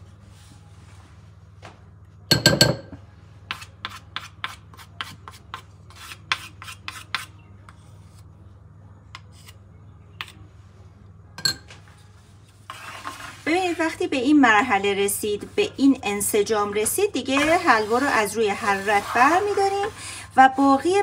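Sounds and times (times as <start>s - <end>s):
low steady hum: 7.3s - 21.0s
wooden spoon scraping frying pan: 12.5s - 21.0s.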